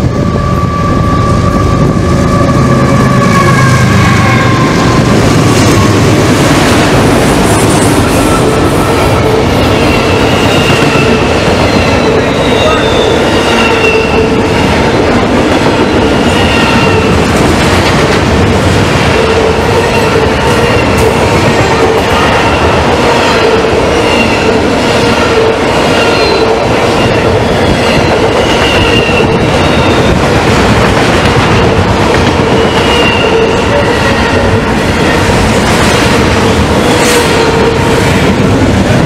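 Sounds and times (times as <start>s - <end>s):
high-pitched wheel squeals: 0.0s - 5.1s, 7.7s - 14.5s, 26.0s - 30.2s, 32.4s - 35.2s
freight train wheels rumbling: 0.0s - 39.0s
clickety-clack of rail joints: 4.9s - 39.0s.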